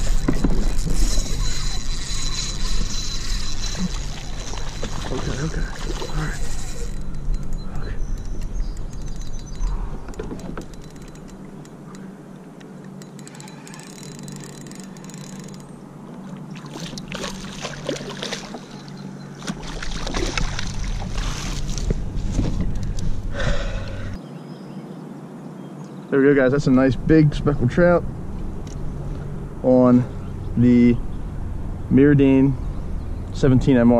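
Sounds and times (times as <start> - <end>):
fish splashing in water: 16.2 - 21.8.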